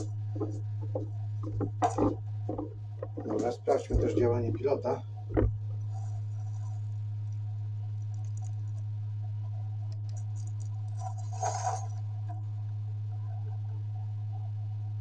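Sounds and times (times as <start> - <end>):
projector humming: 0.0 - 15.0
faint clicks: 8.0 - 8.9.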